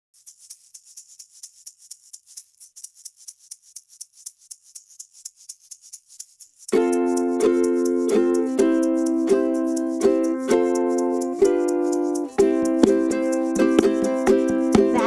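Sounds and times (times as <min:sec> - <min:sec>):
hand shaker rattling: 0:00.1 - 0:15.0
strummed ukulele chords: 0:06.7 - 0:15.0.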